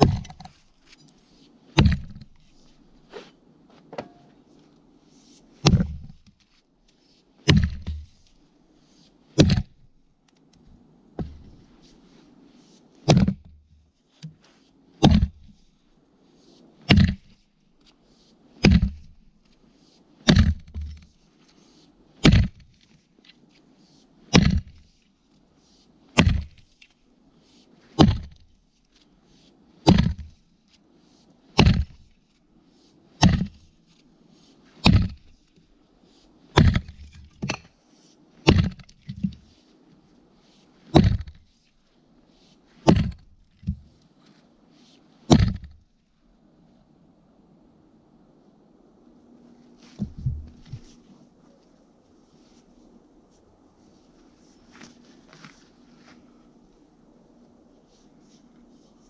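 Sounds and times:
axe chopping into log: 0.0s - 0.5s, 1.8s - 2.3s, 5.6s - 6.2s, 7.4s - 8.2s, 9.4s - 9.8s, 13.0s - 13.5s, 15.0s - 15.5s, 16.9s - 17.3s, 18.6s - 19.1s, 20.2s - 21.1s, 22.2s - 22.7s, 24.3s - 24.8s, 26.2s - 26.6s, 28.0s - 28.4s, 29.8s - 30.4s, 31.6s - 32.1s, 33.2s - 33.6s, 34.8s - 35.3s, 36.6s - 37.7s, 38.4s - 39.4s, 40.9s - 41.4s, 42.8s - 43.8s, 45.3s - 45.8s.

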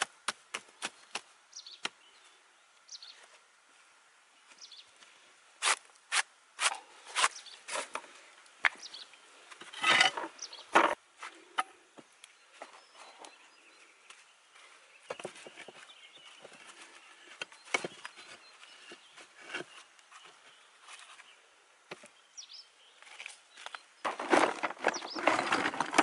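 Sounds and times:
rattling scrape: 9.6s - 11.0s, 24.1s - 26.0s.

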